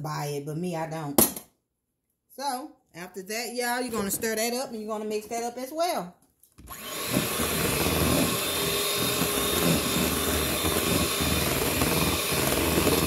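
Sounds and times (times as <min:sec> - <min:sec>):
electric hand mixer whisking: 0:06.6 - 0:13.0.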